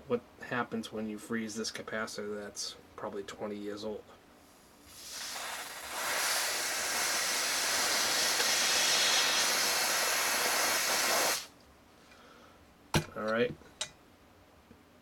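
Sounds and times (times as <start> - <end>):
aerosol spray hissing: 4.9 - 11.5.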